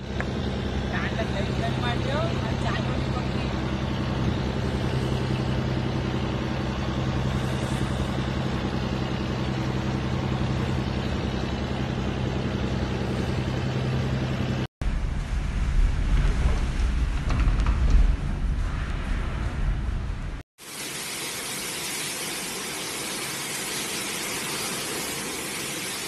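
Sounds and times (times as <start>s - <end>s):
engine humming with hiss: 0.0s - 14.7s, 20.6s - 26.0s.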